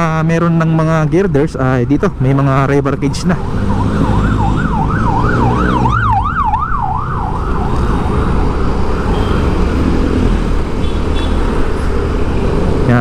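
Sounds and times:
road and vehicle noise: 0.0 - 13.0
siren yelping: 2.9 - 9.7.

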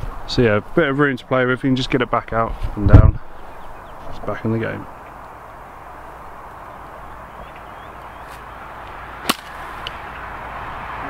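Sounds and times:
outdoor background noise: 0.0 - 11.0
golf club striking ball: 9.2 - 10.0.

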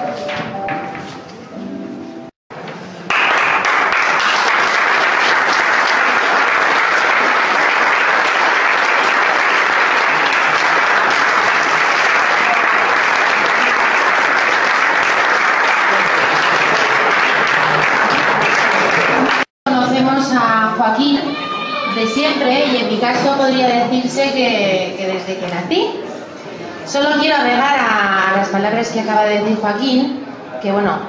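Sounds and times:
audience applauding: 2.9 - 19.5.

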